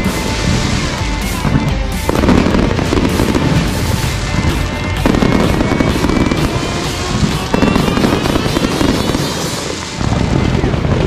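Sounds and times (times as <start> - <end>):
fireworks crackling and popping: 0.0 - 11.0
music: 0.0 - 11.0.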